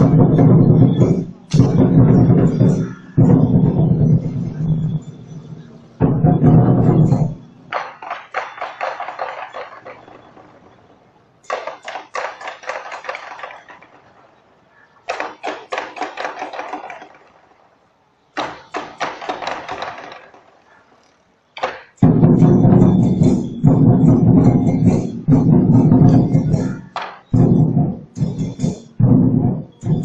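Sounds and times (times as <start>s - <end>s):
big drums beating: 0.0s - 7.8s, 22.0s - 30.0s
ringing percussion strikes: 0.0s - 13.8s, 21.9s - 30.0s.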